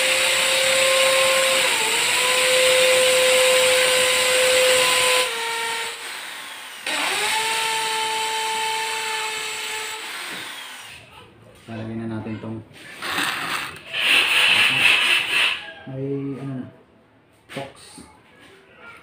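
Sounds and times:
electric drill motor: 0.0s - 11.0s, 13.0s - 15.6s.

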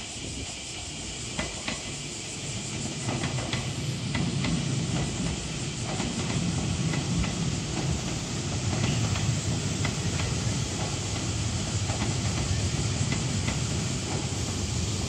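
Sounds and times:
steady hiss: 0.0s - 15.0s
train rumble: 0.0s - 15.0s
wheel clicks over rail joints: 3.0s - 14.4s.

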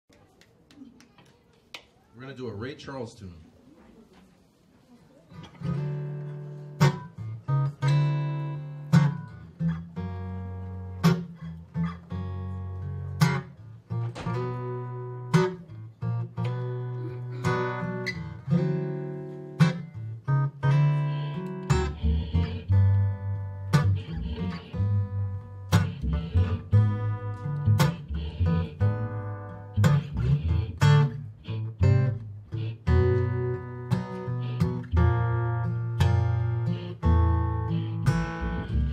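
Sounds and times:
acoustic guitar blues chords: 5.4s - 38.9s
washtub bass line: 20.2s - 38.9s.

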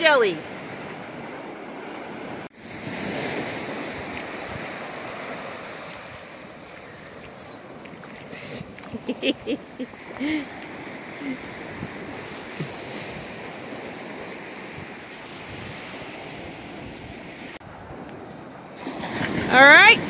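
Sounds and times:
small waves washing onto beach: 0.0s - 20.0s
wind on the microphone: 11.5s - 20.0s.

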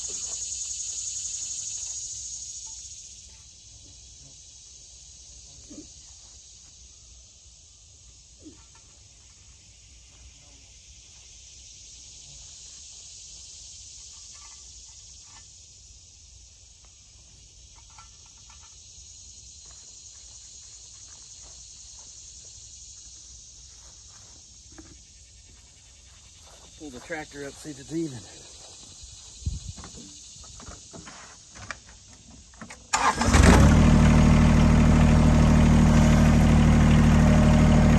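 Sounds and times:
high-pitched insect chorus: 0.0s - 37.9s.

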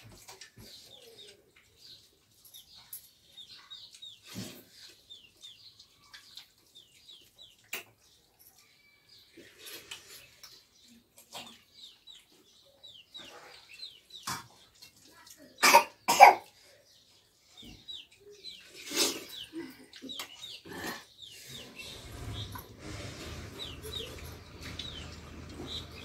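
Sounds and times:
clicks of eating from steel plates: 0.0s - 12.5s, 22.3s - 26.0s.

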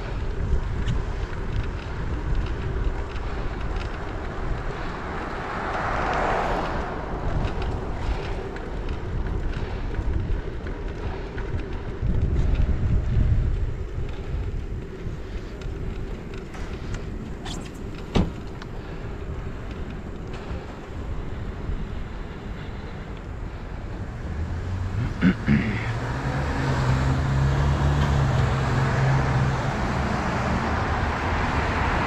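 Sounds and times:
wind buffeting microphone: 0.0s - 25.0s
road noise hiss: 0.0s - 32.0s.

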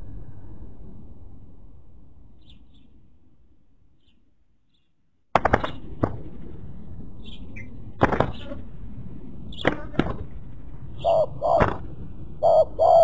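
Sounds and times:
small bird chirps: 2.4s - 3.0s, 7.2s - 7.7s.

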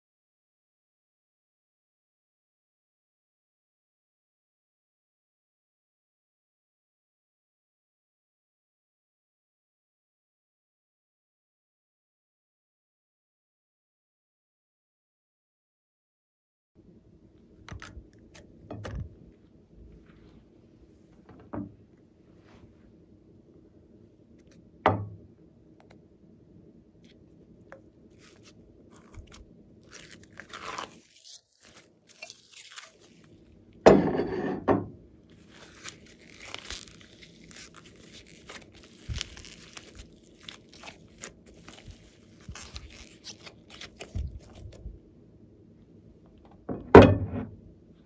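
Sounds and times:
sticky slime crackling: 28.2s - 33.4s, 35.4s - 44.8s.

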